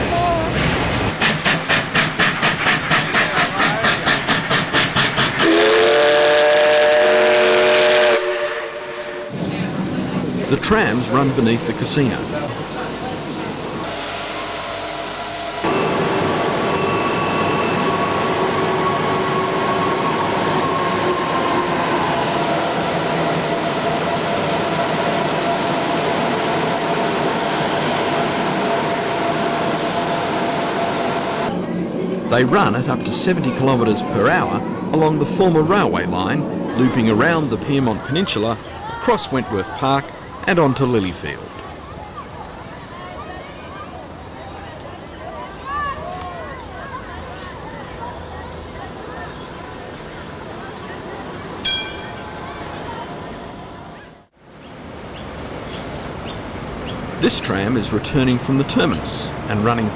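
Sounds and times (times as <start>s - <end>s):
tram equipment humming: 0.0s - 59.9s
steam locomotive exhaust chuffs: 0.6s - 10.6s
steam whistle chord: 5.4s - 9.4s.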